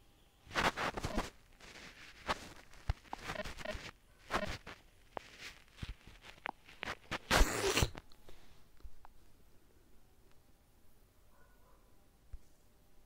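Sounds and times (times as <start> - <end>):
rustling: 0.5 - 8.0.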